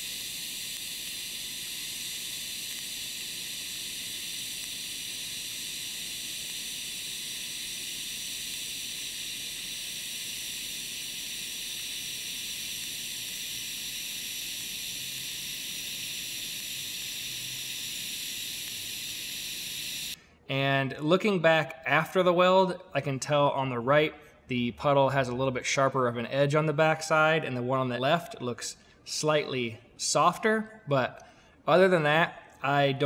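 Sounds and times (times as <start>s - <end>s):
welding arc hissing: 0.0s - 20.2s.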